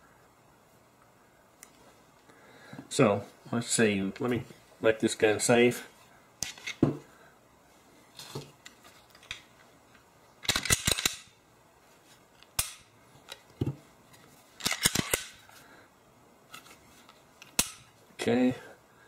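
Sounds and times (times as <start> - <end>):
pistol clicks and snaps: 10.4 - 11.3, 14.6 - 15.4.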